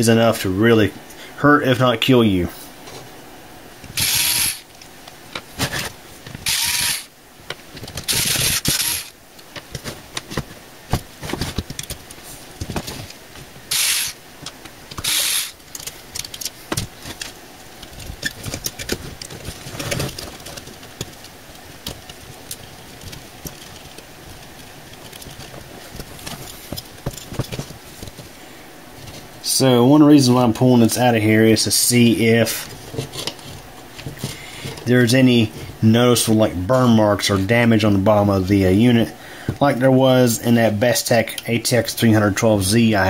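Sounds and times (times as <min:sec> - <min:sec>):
cordless drill spinning: 0:03.9 - 0:04.7, 0:05.6 - 0:07.1, 0:08.0 - 0:09.2, 0:13.7 - 0:14.2, 0:15.0 - 0:15.6
clicks and rattles of metal case: 0:14.4 - 0:28.3.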